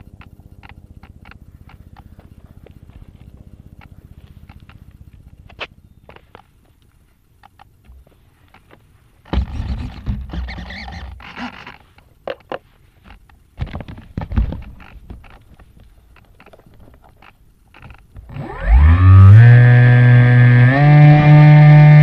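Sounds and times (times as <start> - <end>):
knocking and rubbing: 9.3 - 15.8
rising pitched tone: 18.3 - 22.0.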